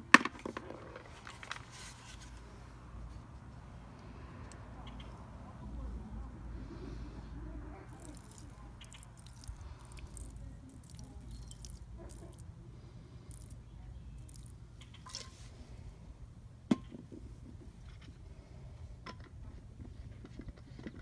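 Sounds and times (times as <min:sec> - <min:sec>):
liquid squishing and dripping: 0:07.8 - 0:12.6, 0:13.2 - 0:15.4.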